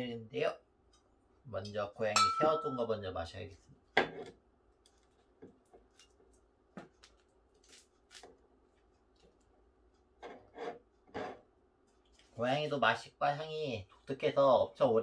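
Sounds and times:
rubbing and scraping on bottle top: 10.2s - 11.5s.

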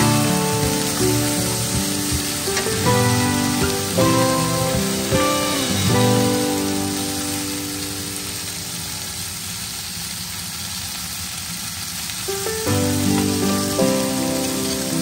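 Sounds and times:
background music: 0.0s - 8.6s, 12.5s - 15.0s
vegetables sizzling in a pan: 0.0s - 15.0s.

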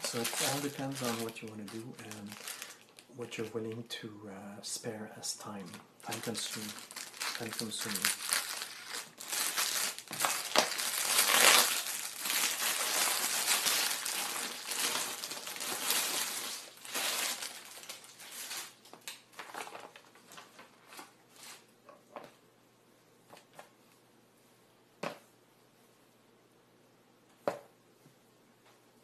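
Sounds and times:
plastic packaging crinkling: 0.0s - 3.8s, 5.4s - 21.7s.

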